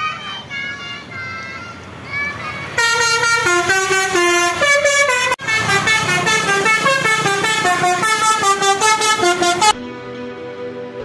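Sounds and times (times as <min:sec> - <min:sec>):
musical air horn tune: 0:02.8 - 0:09.8.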